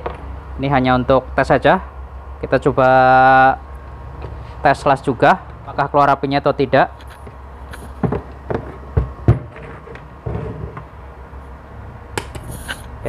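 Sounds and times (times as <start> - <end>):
welder cooling fan humming: 0.0 - 13.0
knocks of handling metal: 7.9 - 10.9.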